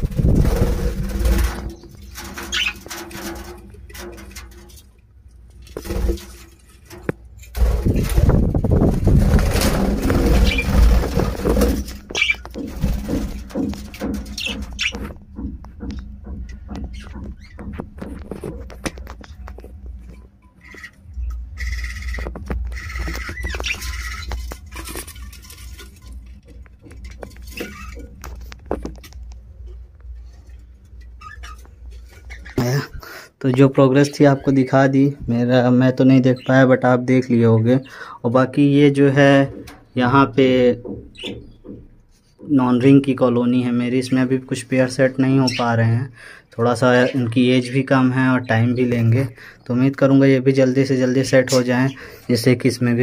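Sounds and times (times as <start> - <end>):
birds calling: 0.0 - 5.0, 5.6 - 50.2, 50.8 - 52.9
knocks and thumps on nest box: 7.0 - 19.2.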